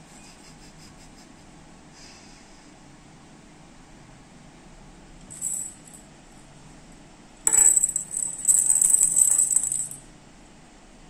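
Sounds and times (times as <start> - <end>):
bell cat toy jingling: 5.3 - 6.0, 7.5 - 10.0.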